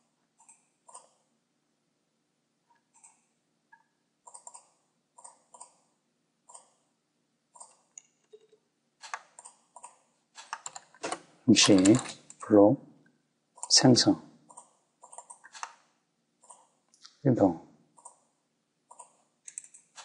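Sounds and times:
computer mouse and keyboard clicks: 0.4s - 1.2s, 2.8s - 3.2s, 3.8s - 5.9s, 6.5s - 6.8s, 7.6s - 12.4s, 14.5s - 17.2s, 18.0s - 18.2s, 18.9s - 20.0s.

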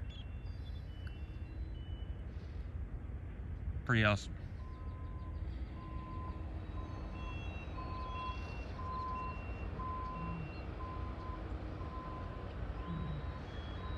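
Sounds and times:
low-pitched reversing beeper: 4.6s - 13.9s.

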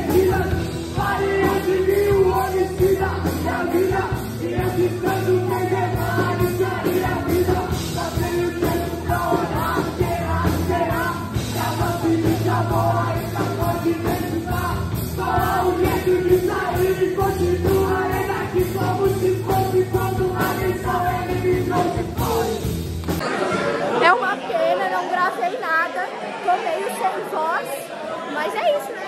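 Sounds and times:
man singing into a microphone: 0.0s - 22.7s
electric bass: 0.0s - 23.2s
drums: 0.0s - 23.6s.

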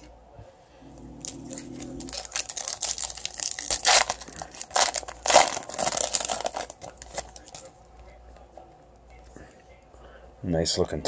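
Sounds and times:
foil wrapper tearing and crinkling: 1.2s - 7.6s.

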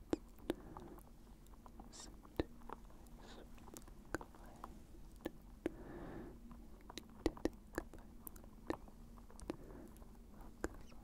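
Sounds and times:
soft breathy sound: 0.1s - 1.2s, 1.9s - 11.0s
wet mouth clicks: 5.2s - 5.4s, 6.8s - 9.6s
lip smacks: 6.8s - 11.0s.

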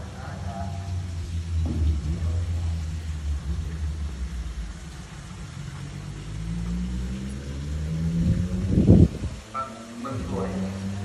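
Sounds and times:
vehicle engine running: 0.0s - 11.0s.

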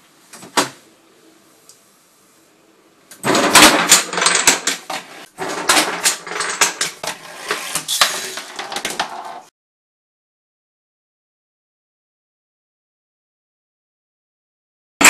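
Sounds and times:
wooden blocks toppling and clattering: 7.8s - 9.5s.

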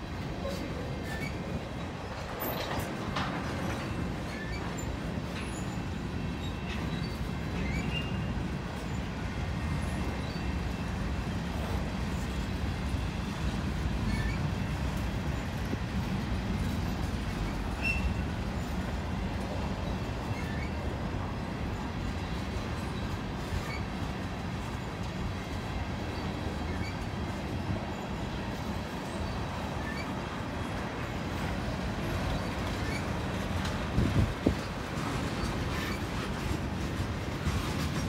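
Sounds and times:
train wheels rumbling on rails: 0.0s - 38.0s
wheel squeaks: 16.6s - 18.7s, 32.3s - 33.2s.

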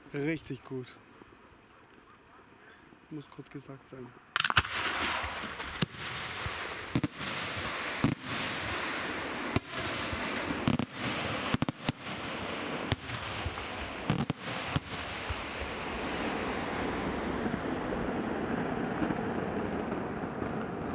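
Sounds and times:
continuous hiss: 0.0s - 20.9s
firework shells bursting: 4.3s - 16.6s.

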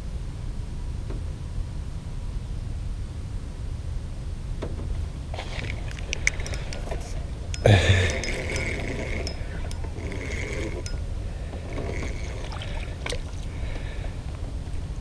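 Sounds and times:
fishing reel being cranked: 5.4s - 13.5s.

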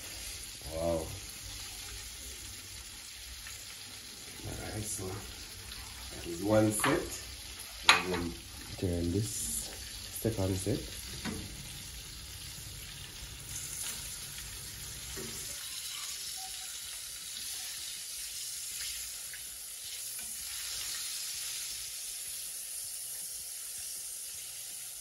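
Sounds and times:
deep-frying sizzle and crackle: 0.0s - 25.0s
faint knocks in pan: 11.1s - 11.6s.

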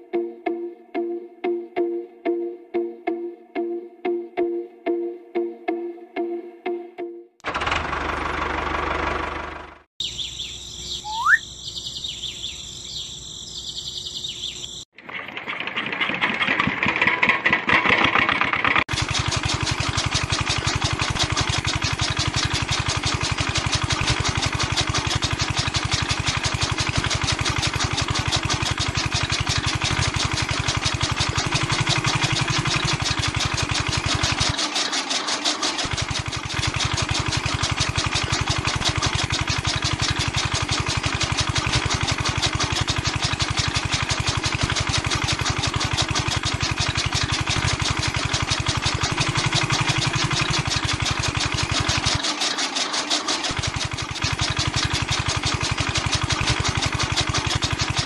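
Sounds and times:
small diesel engine running: 7.4s - 58.0s
bird chirp: 10.0s - 14.9s
chaff cutter chopping grass: 15.8s - 58.0s.

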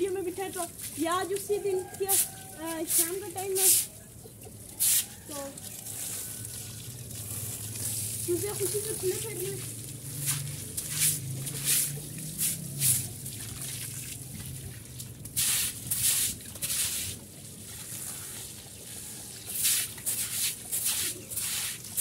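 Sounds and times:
water splashing on concrete: 0.0s - 22.0s
broom scrubbing concrete: 0.1s - 4.0s, 4.7s - 5.5s, 7.4s - 13.5s, 15.3s - 17.2s, 19.4s - 22.0s.

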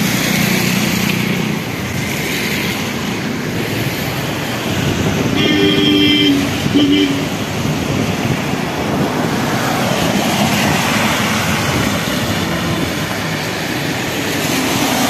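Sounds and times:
road traffic passing: 0.0s - 15.0s
rushing floodwater: 0.0s - 15.0s
wind: 0.0s - 15.0s
vehicle horn: 5.3s - 7.3s.

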